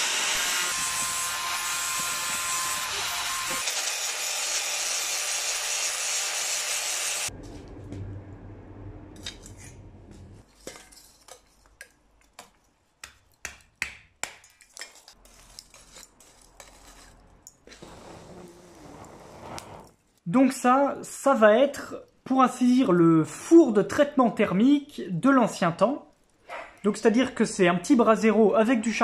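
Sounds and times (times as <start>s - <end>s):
angle grinder grinding metal: 0.0s - 7.3s.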